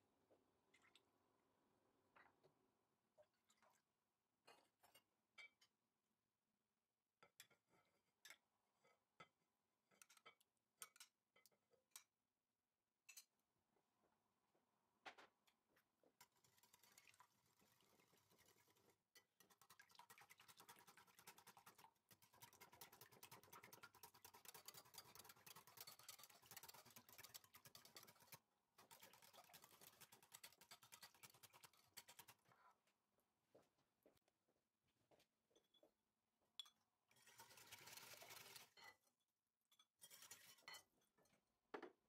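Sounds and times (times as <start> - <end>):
whisk ticking against glass bowl: 19.4 - 32.3.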